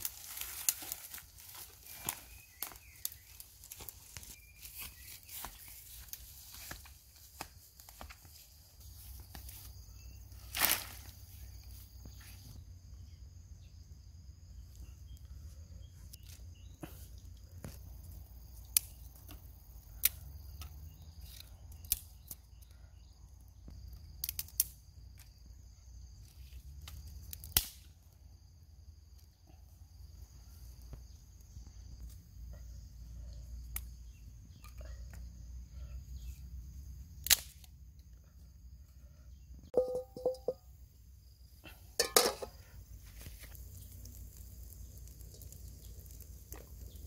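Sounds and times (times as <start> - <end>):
wooden sticks snapping: 21.3 - 22.4, 24.2 - 25.3, 26.8 - 27.9, 37.2 - 37.8.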